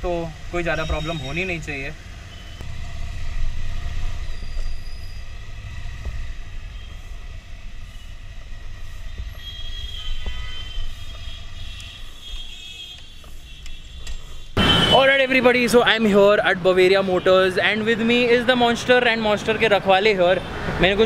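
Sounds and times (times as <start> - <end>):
motorcycle engine low rumble: 0.0 - 12.2
faint high squeal: 3.8 - 6.0, 9.2 - 14.8.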